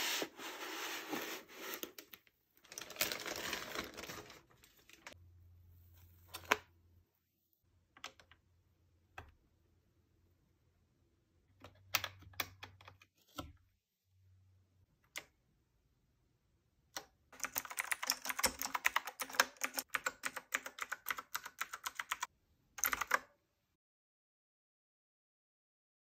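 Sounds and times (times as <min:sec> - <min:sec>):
mechanical keyboard typing: 0:17.4 - 0:23.4.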